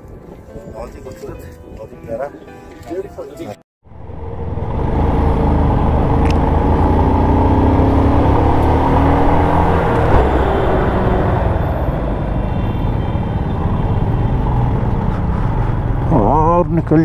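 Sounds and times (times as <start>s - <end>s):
motorcycle engine running: 3.9s - 16.6s.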